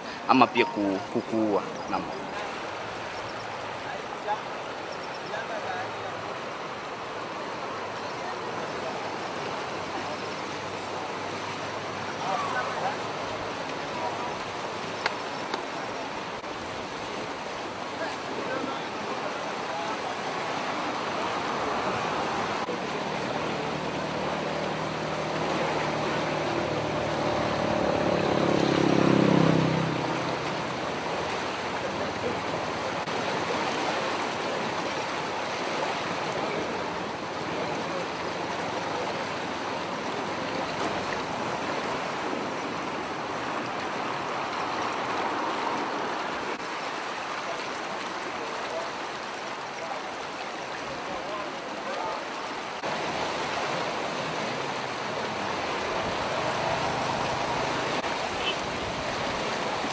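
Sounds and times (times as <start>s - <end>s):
floodwater rushing: 0.0s - 59.9s
vehicle passing by: 20.8s - 32.3s, 52.8s - 59.5s.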